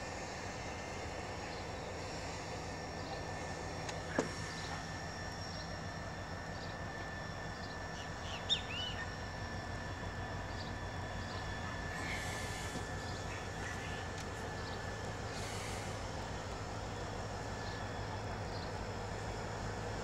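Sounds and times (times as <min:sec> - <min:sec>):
diesel locomotive hum: 0:00.0 - 0:20.0
birds chirping: 0:07.6 - 0:09.4, 0:10.5 - 0:16.0.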